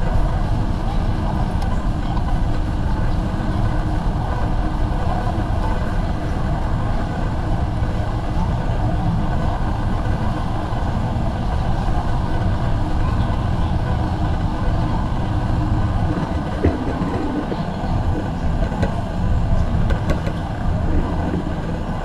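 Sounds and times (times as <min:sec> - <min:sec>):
murmur of voices: 0:00.0 - 0:22.0
low rumble: 0:11.4 - 0:22.0.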